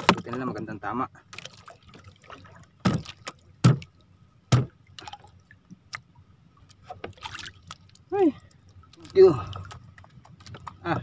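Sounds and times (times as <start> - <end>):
heavy thuds on wooden boat boards: 2.8 - 3.9, 4.5 - 4.8.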